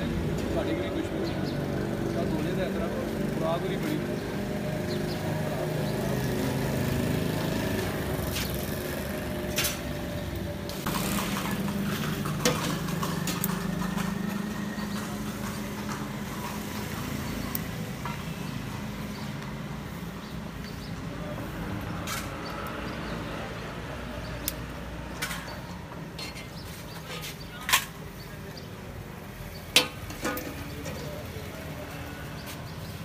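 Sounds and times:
street traffic: 0.0s - 33.0s
metal ladle clinking on pot: 29.8s - 31.0s.

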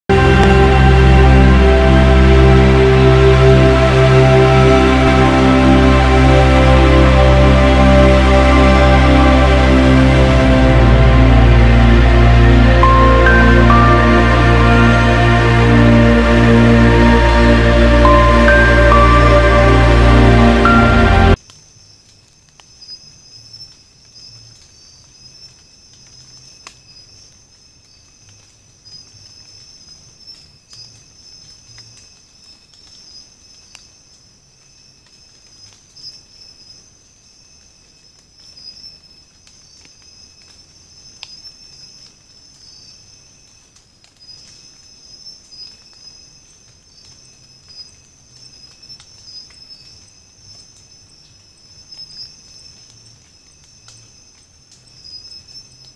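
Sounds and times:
insects trilling: 21.4s - 55.9s
faint ticks: 37.5s - 55.9s.

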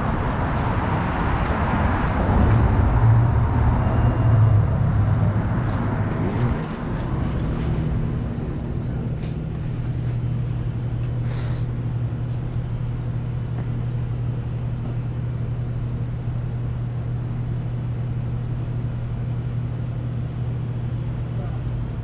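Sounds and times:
low mechanical hum and rumble: 0.0s - 22.0s.

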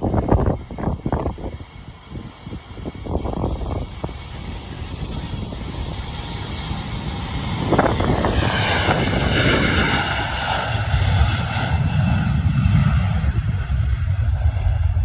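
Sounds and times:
deep jet rumble: 0.0s - 15.0s
jet engine whine: 0.0s - 15.0s
wind buffeting microphone: 0.0s - 15.0s.

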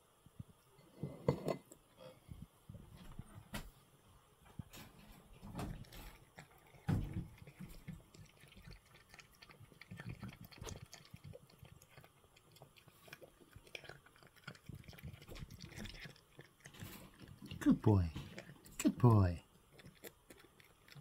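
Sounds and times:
cat chewing wetly: 4.8s - 21.0s.

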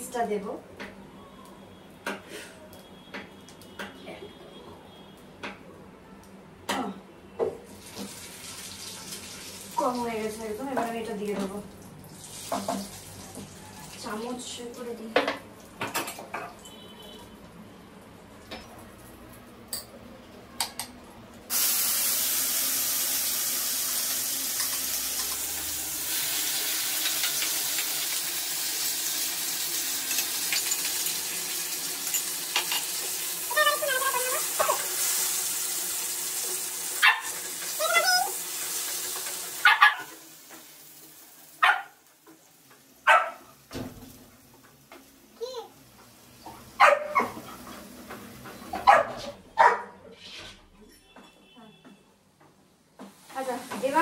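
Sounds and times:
paste sizzling in hot oil: 21.5s - 42.7s.

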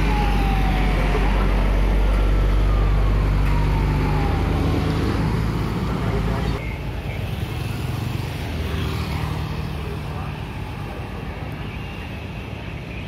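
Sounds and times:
siren falling sweeps: 0.0s - 6.0s.

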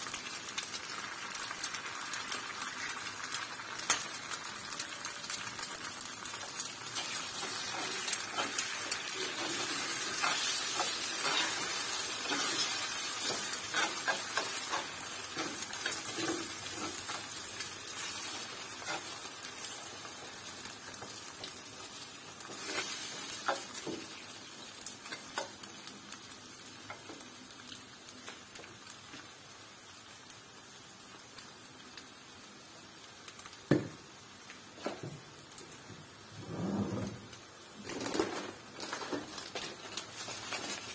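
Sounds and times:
food sizzling in a frying pan: 0.0s - 40.9s
metal spoon scraping a pan: 7.0s - 17.3s, 18.0s - 19.2s.

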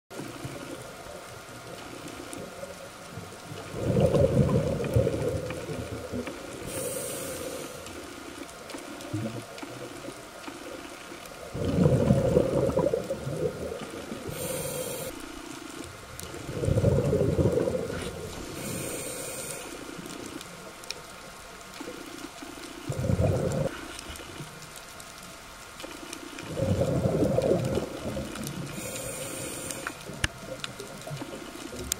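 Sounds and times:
faint steady hum: 0.2s - 31.9s
exhaled bubbles gushing: 3.4s - 7.4s, 8.1s - 20.4s, 21.8s - 24.6s, 26.0s - 31.9s
regulator inhalation hiss: 6.6s - 8.1s, 14.2s - 15.3s, 18.0s - 20.1s, 28.7s - 30.0s.

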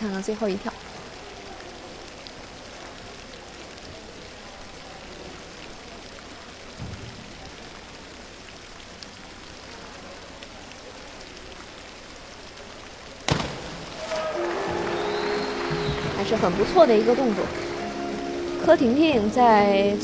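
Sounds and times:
pool hall background hiss: 0.0s - 20.0s
diver splashing into water: 13.3s - 16.8s.

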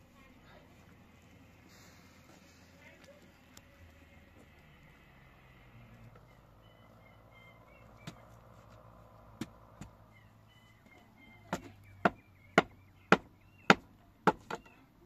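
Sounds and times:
faint bird chirps: 5.4s - 9.2s, 9.9s - 13.7s, 14.4s - 15.0s.

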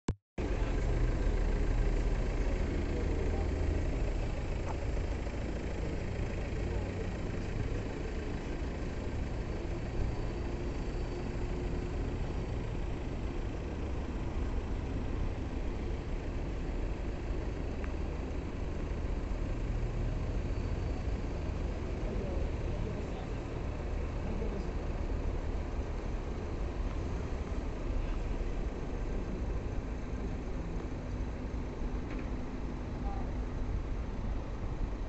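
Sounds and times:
truck engine idling: 0.4s - 35.0s.

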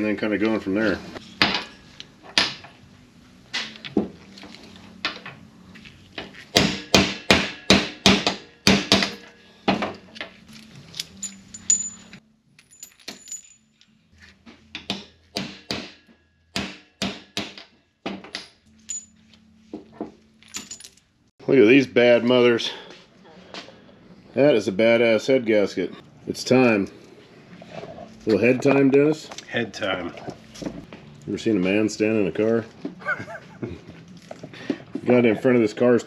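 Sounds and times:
hammer striking metal: 6.6s - 9.8s, 14.8s - 17.7s
ringing metal clinks: 11.0s - 14.0s, 18.8s - 19.4s.

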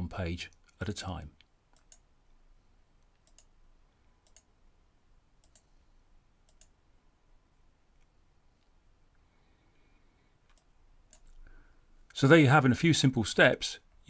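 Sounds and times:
computer mouse clicks: 1.4s - 2.1s, 3.0s - 3.5s, 4.2s - 4.5s, 5.4s - 5.7s, 6.4s - 6.8s, 10.4s - 11.4s.

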